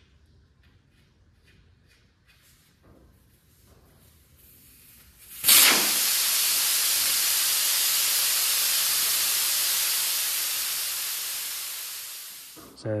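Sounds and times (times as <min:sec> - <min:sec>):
air hissing from tyre valve: 0:04.4 - 0:12.6.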